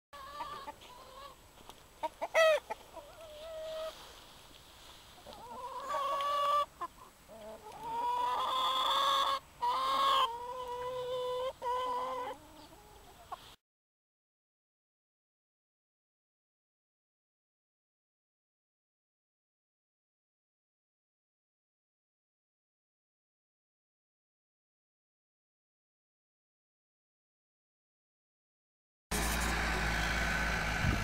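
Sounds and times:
chickens calling: 0:00.2 - 0:13.6.

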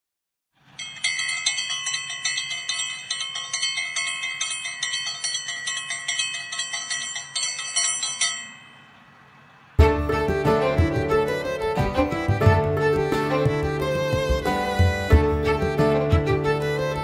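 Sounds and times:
high bell-like chimes: 0:00.7 - 0:09.5.

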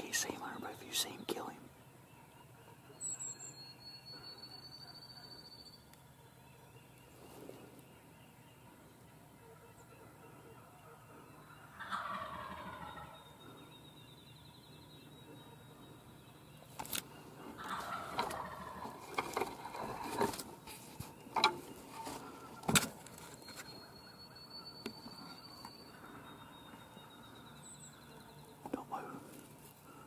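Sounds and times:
turkeys gobbling: 0:11.6 - 0:13.3, 0:17.2 - 0:20.3.

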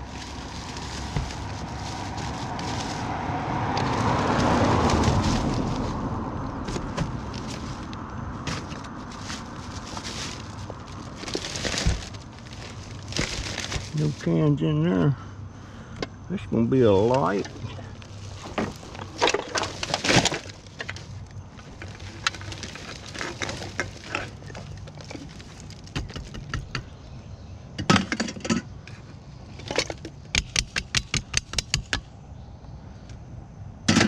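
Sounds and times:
can and cardboard handled: 0:00.0 - 0:06.0, 0:06.6 - 0:14.3
plastic bag crinkling: 0:00.0 - 0:14.4, 0:17.3 - 0:26.2.

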